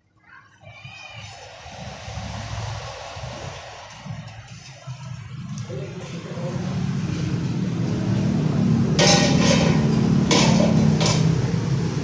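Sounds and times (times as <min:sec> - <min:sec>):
metal parts clanking on concrete: 0:09.0 - 0:11.4.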